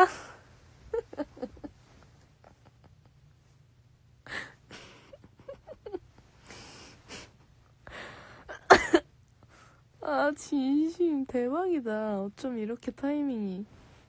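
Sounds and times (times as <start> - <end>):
woman's breathy stifled laughter: 4.3 - 9.0.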